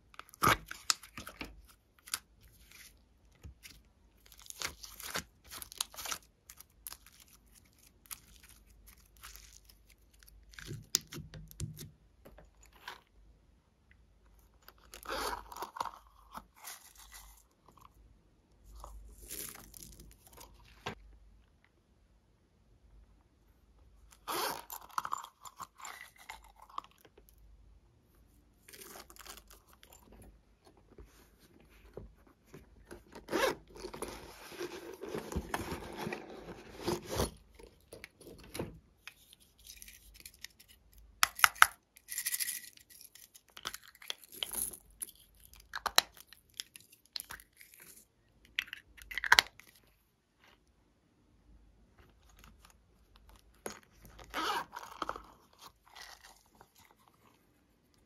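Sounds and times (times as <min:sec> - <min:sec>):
rustles and scrapes of handling: 0:28.0 - 0:41.1, 0:52.0 - 0:58.0.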